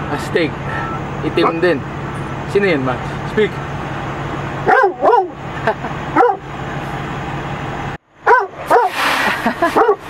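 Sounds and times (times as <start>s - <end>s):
dog barking: 4.6s - 5.4s, 6.2s - 6.4s, 8.2s - 9.0s, 9.7s - 10.0s.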